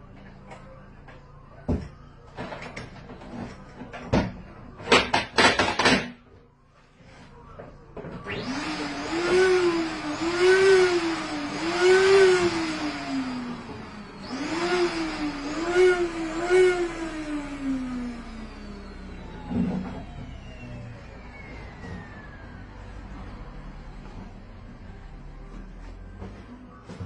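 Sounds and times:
electric air blower running: 0:08.2 - 0:26.4.

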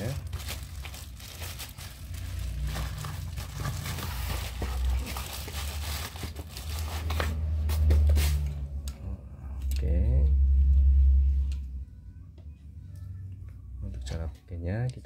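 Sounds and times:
crinkling handling noise: 0:00.0 - 0:08.5
steady low hum: 0:07.6 - 0:15.0.

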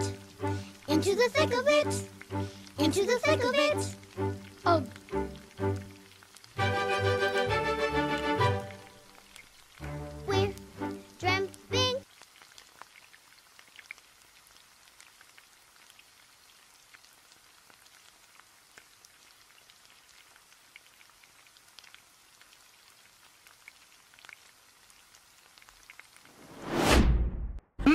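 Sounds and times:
sugar syrup crackling and popping: 0:00.0 - 0:26.4.

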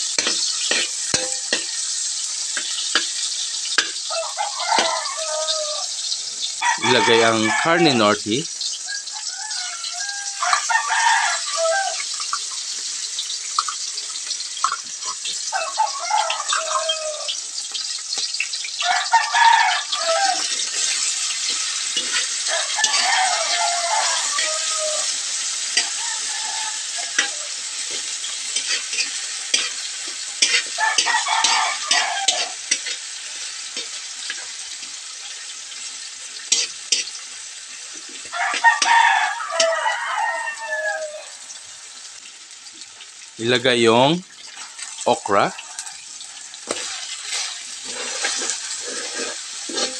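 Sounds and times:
metal spoon scraping a pan: 0:00.0 - 0:05.6, 0:17.6 - 0:39.9, 0:45.6 - 0:49.9
food sizzling in hot oil: 0:00.0 - 0:49.9
rooster crowing: 0:03.8 - 0:12.2, 0:15.4 - 0:17.5, 0:18.8 - 0:28.8, 0:30.4 - 0:32.9, 0:38.2 - 0:41.6, 0:45.4 - 0:46.9.

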